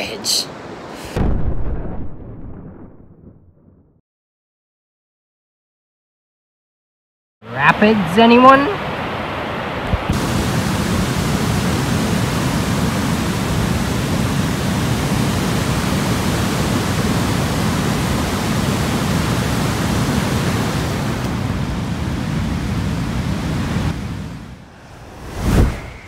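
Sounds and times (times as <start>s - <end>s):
waterfall roaring: 7.5s - 24.6s.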